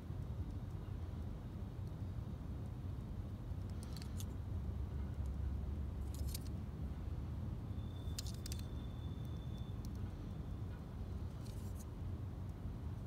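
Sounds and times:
faint high whine: 6.9 - 13.0.

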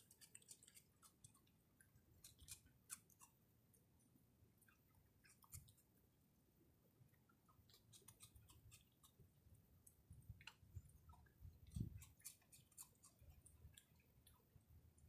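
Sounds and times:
raccoon chewing popcorn: 0.0 - 3.4, 9.9 - 14.6.

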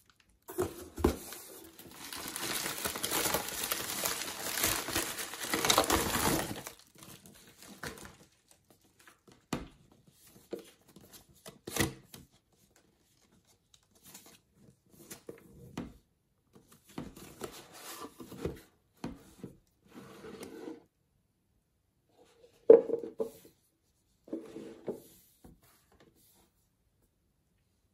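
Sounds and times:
plastic mailer crinkling: 0.0 - 9.2.

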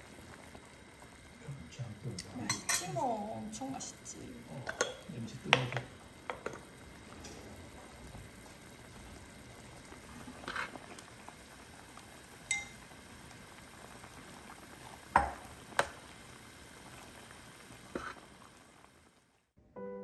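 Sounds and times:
soup bubbling faintly: 0.0 - 19.4
metal spoon clinking on dishes: 2.4 - 3.0, 12.5 - 12.8.

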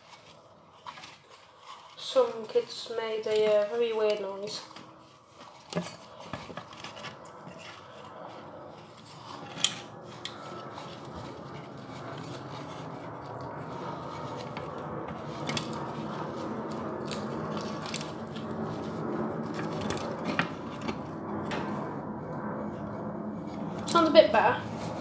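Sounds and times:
tissue rustling on plastic: 0.0 - 21.2.

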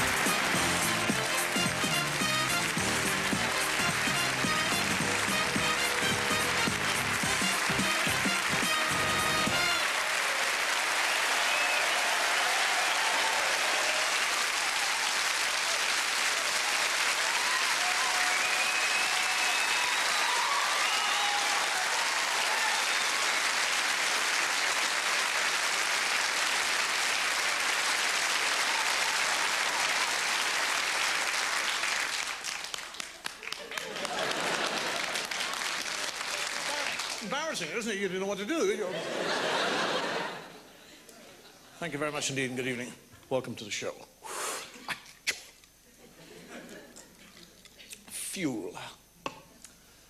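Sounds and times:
audience applauding: 0.0 - 37.8.

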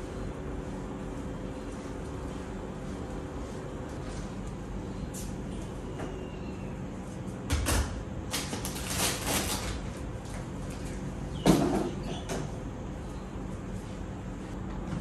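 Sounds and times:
packet rustling: 8.3 - 10.0.

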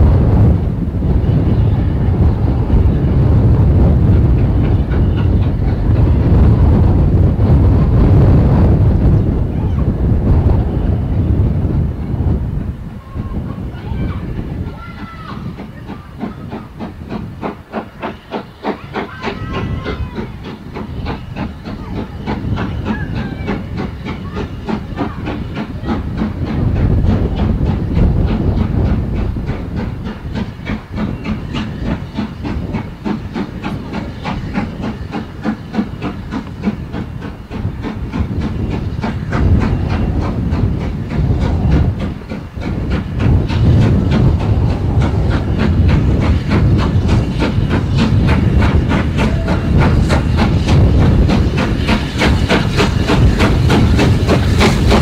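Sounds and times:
steam hissing: 0.0 - 55.0
steam locomotive chuffing: 0.0 - 55.0.

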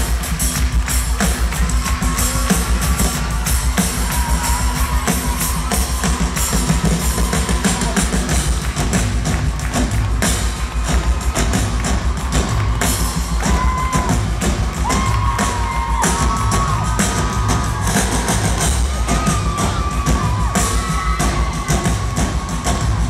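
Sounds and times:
crowd cheering and screaming: 0.0 - 23.0
drum kit played hard: 0.0 - 23.0.

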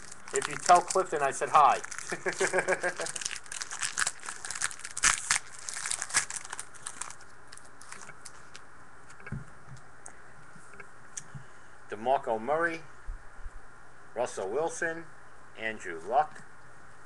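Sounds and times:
plastic wrapper crinkling and tearing: 0.0 - 8.6.

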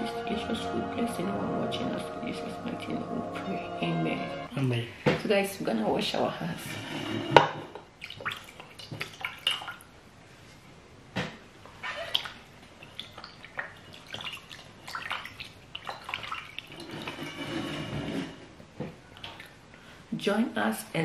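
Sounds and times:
hands splashing water in metal bowl: 12.1 - 17.1.

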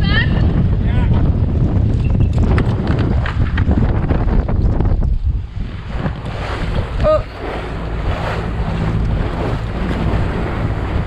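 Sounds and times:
water rushing along hull: 0.0 - 11.0
wind buffeting microphone: 0.0 - 11.0.

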